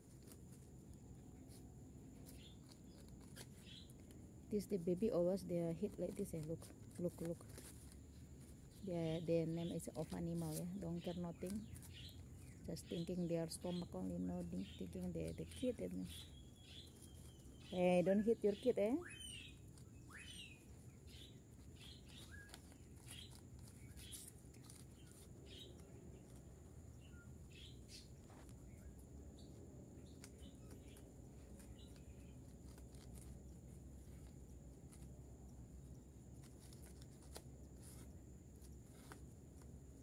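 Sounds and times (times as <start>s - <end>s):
distant bird chirps: 2.2s - 33.3s.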